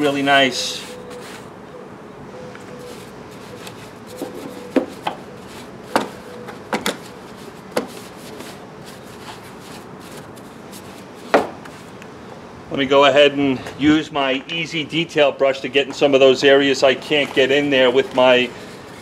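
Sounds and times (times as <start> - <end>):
brush scrubbing plastic: 7.3 - 11.9.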